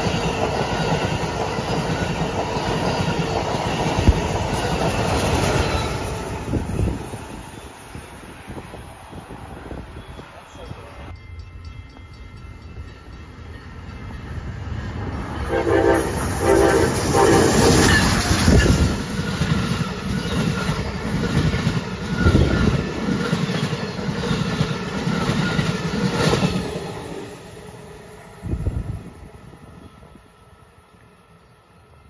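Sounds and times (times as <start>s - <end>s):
train rumble and wheel clatter: 0.0s - 32.0s
train horn blasts: 15.4s - 18.2s.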